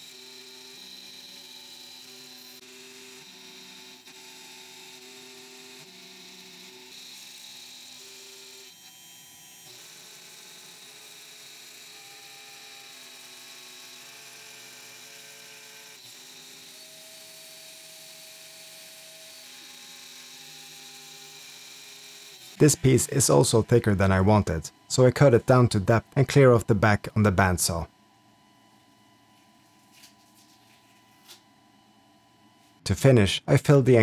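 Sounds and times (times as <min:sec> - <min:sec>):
cnc router milling: 0:00.0 - 0:23.8.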